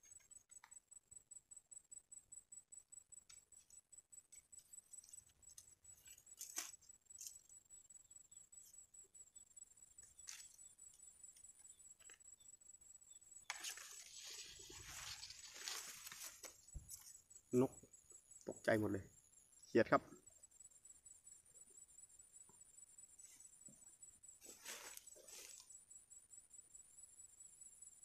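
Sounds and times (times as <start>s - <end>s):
faint high whine: 0.0s - 28.0s
rustling from handling: 13.5s - 17.1s, 24.4s - 25.6s.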